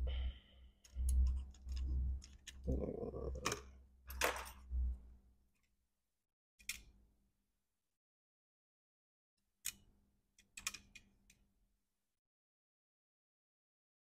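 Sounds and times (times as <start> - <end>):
small parts clicking and tapping: 0.8 - 2.7, 6.6 - 7.0, 9.5 - 11.5.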